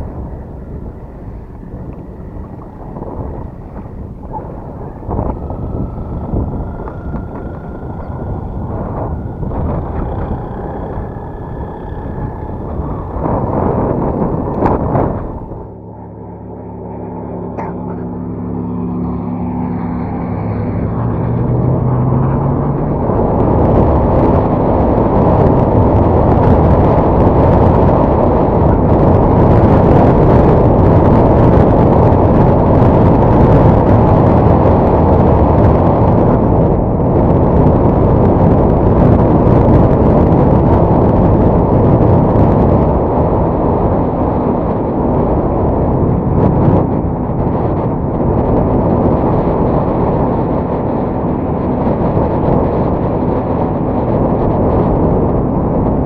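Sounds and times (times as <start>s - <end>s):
strong wind buffeting microphone: 0.0s - 56.0s.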